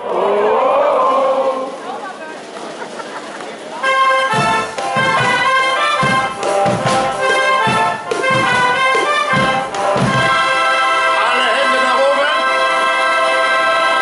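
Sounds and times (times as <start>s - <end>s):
shawm band playing chords: 0.0s - 14.0s
bass drum beat: 4.3s - 10.6s.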